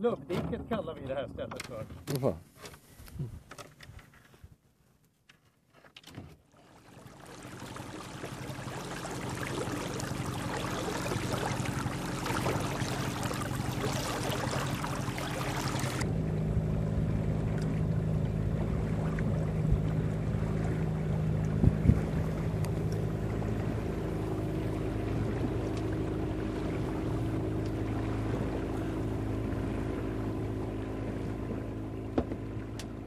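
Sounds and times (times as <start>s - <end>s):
water splashing along hull: 6.4s - 33.0s
boat motor drone: 6.6s - 33.0s.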